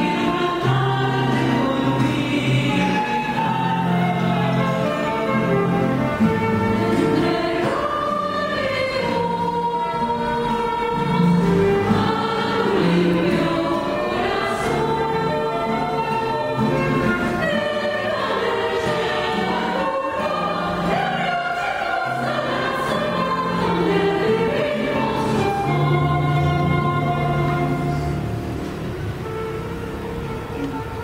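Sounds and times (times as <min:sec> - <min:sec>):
choir singing a folk song: 0:00.0 - 0:28.4
classical guitars: 0:00.0 - 0:31.0
flute: 0:02.6 - 0:09.0, 0:13.7 - 0:23.2.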